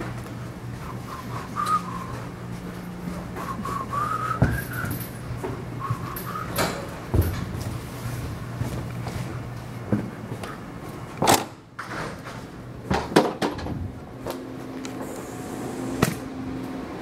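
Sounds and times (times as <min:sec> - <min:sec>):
low hum: 0:00.0 - 0:11.2
person whistling a tune: 0:00.8 - 0:02.2, 0:03.4 - 0:05.1, 0:05.8 - 0:06.8.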